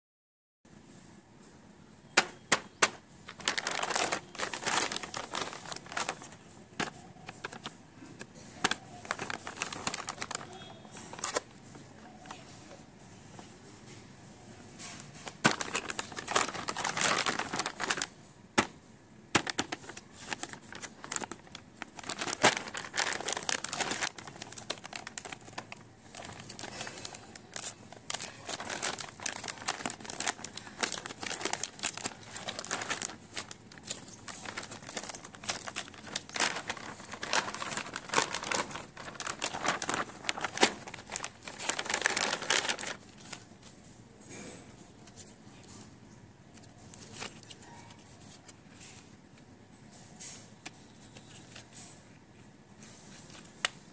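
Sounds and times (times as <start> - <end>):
plastic packaging crinkling and tearing: 2.2 - 12.5, 15.2 - 43.8, 46.5 - 49.0.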